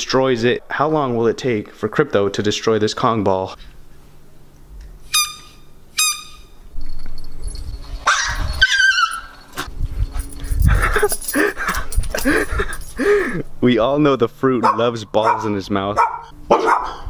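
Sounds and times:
squeaky ball squeaks: 0:05.1 - 0:06.6, 0:08.0 - 0:09.4
dog whining and yelping: 0:08.0 - 0:09.7.

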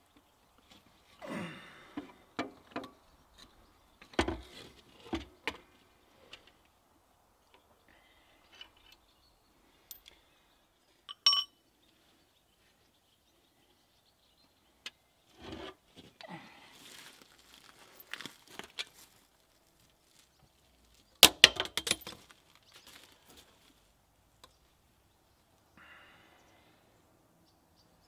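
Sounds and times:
metal clinks: 0:11.1 - 0:11.5.

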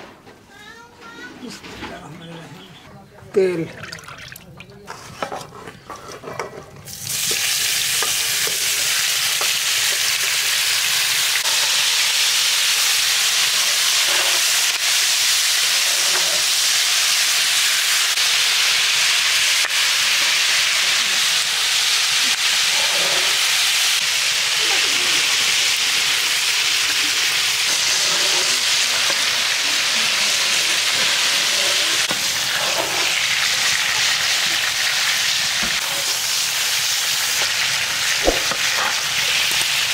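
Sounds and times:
metal spatula scraping: 0:04.8 - 0:06.8, 0:13.4 - 0:14.8, 0:15.4 - 0:16.9, 0:21.8 - 0:24.0, 0:26.8 - 0:34.1
chicken sizzling in hot oil: 0:06.8 - 0:39.9.

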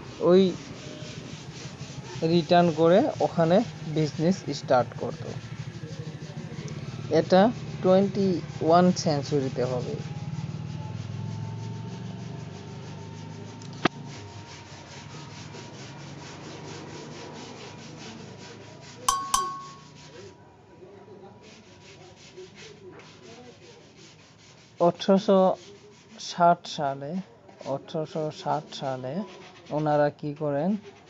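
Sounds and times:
sharp ticks with ringing tone: 0:19.1 - 0:19.9.

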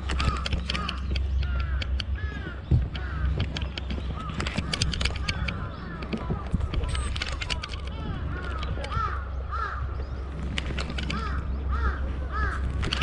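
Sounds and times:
sharp clicks: 0:00.0 - 0:09.3, 0:10.3 - 0:12.0, 0:12.7 - 0:13.0
crows cawing: 0:00.0 - 0:13.0
steady low rumble: 0:00.0 - 0:13.0.

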